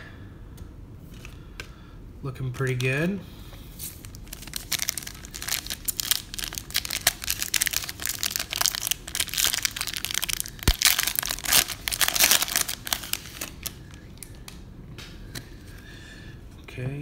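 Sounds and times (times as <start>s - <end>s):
foil wrapper crinkling: 3.8s - 14.5s.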